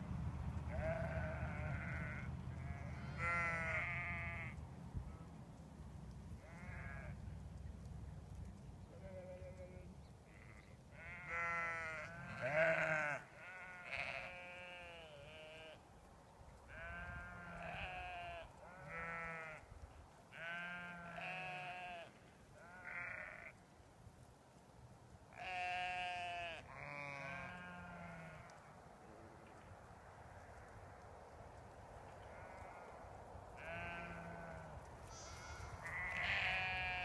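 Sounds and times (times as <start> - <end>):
sheep bleating: 0.7 - 4.6, 6.4 - 7.1, 9.0 - 15.8, 16.7 - 19.6, 20.4 - 23.5, 25.4 - 28.4, 33.6 - 37.0.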